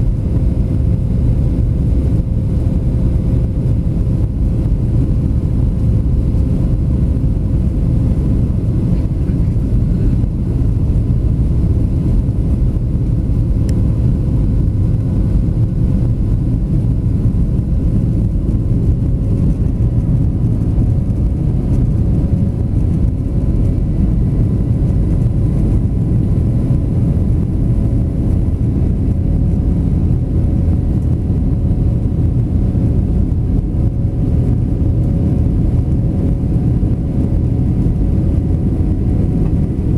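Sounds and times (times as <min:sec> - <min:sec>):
airflow rush in aircraft cabin: 0:00.0 - 0:39.9
jet engines: 0:00.0 - 0:39.9.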